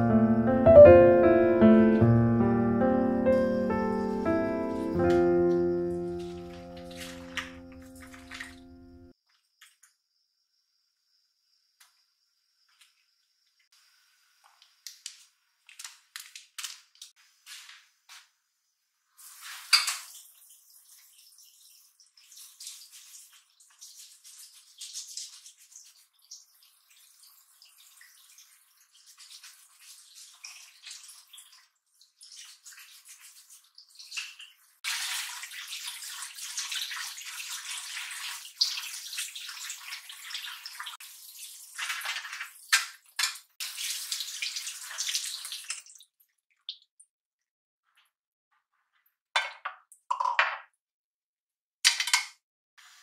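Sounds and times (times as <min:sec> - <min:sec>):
tap water running into sink: 0:03.6 - 0:09.0, 0:19.3 - 0:46.1.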